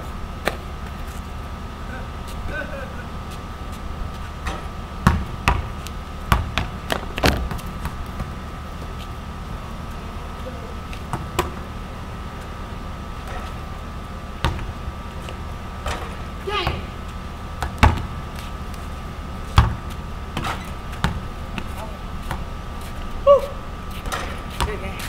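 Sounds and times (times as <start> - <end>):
basketball hitting rim and backboard: 4.4 - 8.4, 11.1 - 11.7, 14.4 - 14.8, 15.8 - 17.0, 17.6 - 18.2, 19.5 - 22.5
basketball bouncing on concrete: 4.4 - 8.9, 11.0 - 11.7, 14.4 - 17.0, 17.6 - 18.8, 19.5 - 22.5, 24.0 - 25.0.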